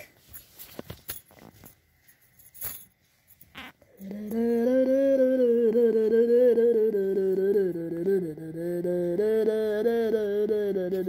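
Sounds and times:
person humming: 3.6 - 11.0.

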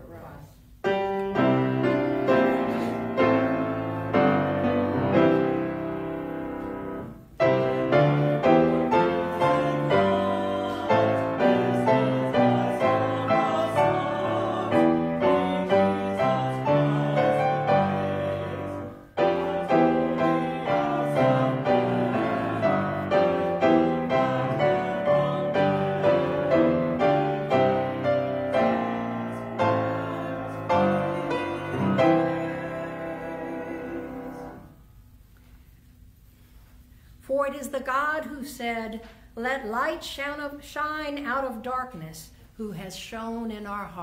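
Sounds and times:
piano playing hymn chords: 0.8 - 34.9.

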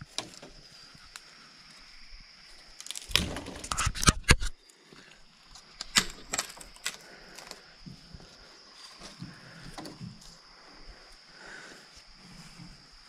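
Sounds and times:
dry sticks crunching and snapping: 0.0 - 1.3, 2.5 - 4.8, 5.5 - 7.6.

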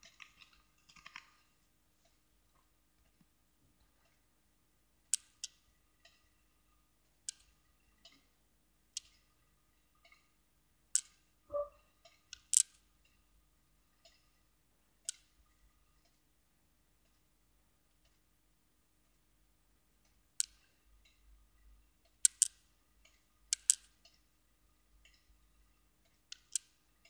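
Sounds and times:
brief low tone: 11.5 - 11.8.

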